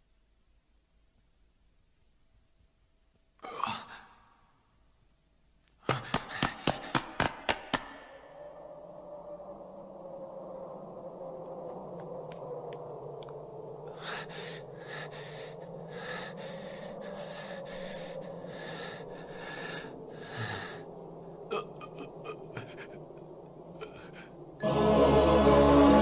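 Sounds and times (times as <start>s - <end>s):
man panting heavily: 5.8s - 8.1s, 13.9s - 20.9s
low falling drone: 7.9s - 26.0s
loud music: 24.6s - 26.0s.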